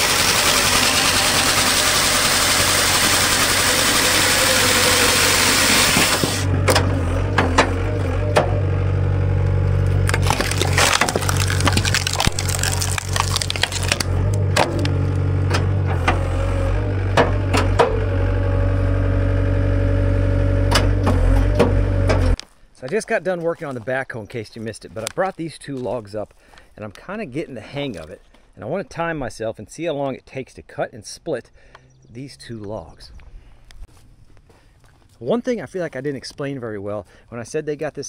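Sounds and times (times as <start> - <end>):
chainsaw cutting through log: 0.0 - 8.4, 9.8 - 15.4
skid steer engine running: 0.0 - 22.4
wood splitting cracks: 9.8 - 15.7.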